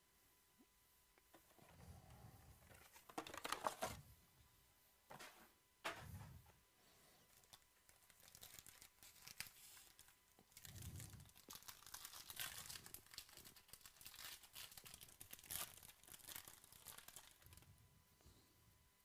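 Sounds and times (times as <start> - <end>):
foil wrapper crinkling and tearing: 7.3 - 17.6.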